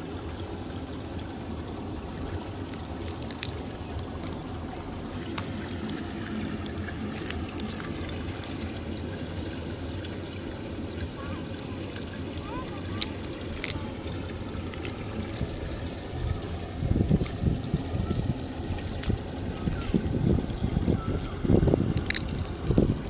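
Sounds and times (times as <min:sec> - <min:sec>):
wind rumble on microphone: 0:15.1 - 0:23.0.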